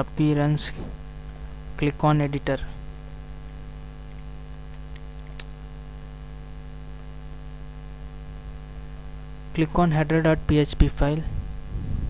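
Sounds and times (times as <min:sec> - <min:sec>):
electrical hum: 0:00.0 - 0:12.0.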